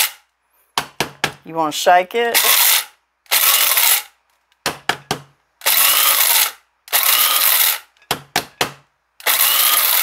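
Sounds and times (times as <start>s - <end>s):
blade coffee grinder grinding: 2.4s - 4.1s, 5.6s - 7.9s, 9.2s - 10.0s.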